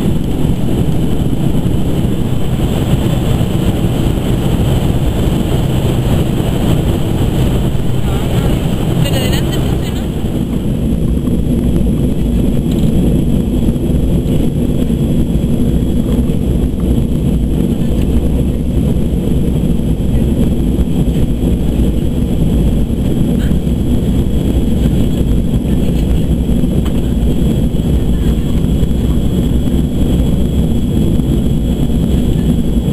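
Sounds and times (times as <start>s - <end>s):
air rushing past fuselage: 0.0s - 32.9s
jet engines droning: 0.0s - 32.9s
thin steady whine: 0.0s - 32.9s.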